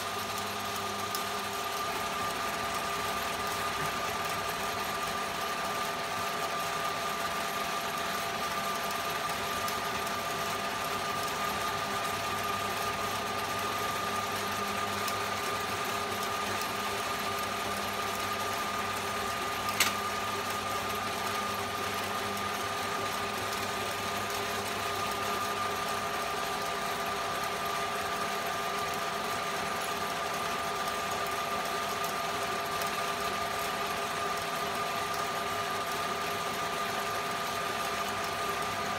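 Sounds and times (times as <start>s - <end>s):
sharp click: 19.7s - 20.0s.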